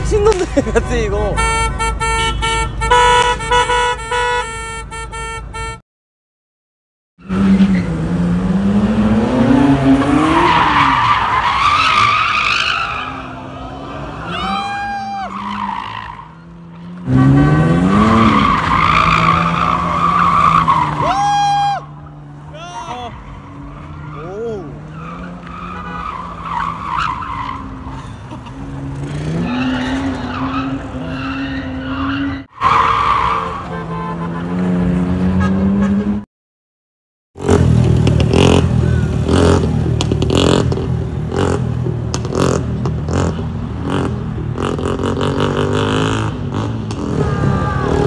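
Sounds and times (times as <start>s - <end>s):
car engine revving: 7.2s - 14.6s, 15.3s - 21.1s.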